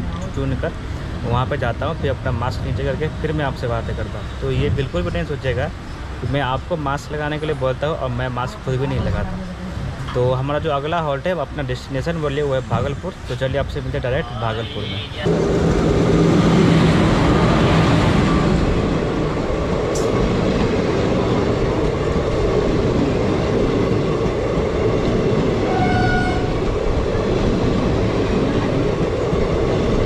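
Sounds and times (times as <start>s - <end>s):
train rushing and rumbling past: 15.2s - 30.0s
train wheel noise: 15.2s - 30.0s.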